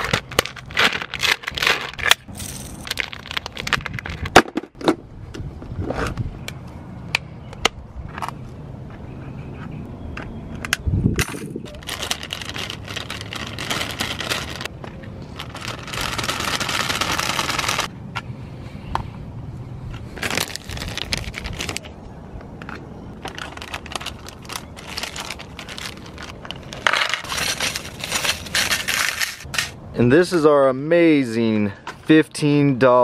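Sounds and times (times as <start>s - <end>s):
plastic packets crinkling: 0.0s - 4.3s, 11.6s - 14.7s, 15.3s - 17.9s, 20.2s - 21.9s, 23.2s - 29.7s
bag of baits shaken: 11.7s - 14.7s, 15.4s - 17.9s, 27.1s - 29.7s.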